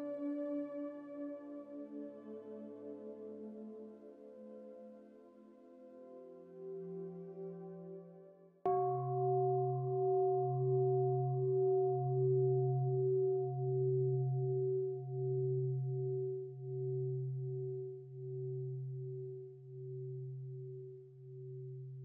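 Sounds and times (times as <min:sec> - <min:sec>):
meditation bowl bell ringing: 0:08.7 - 0:21.8.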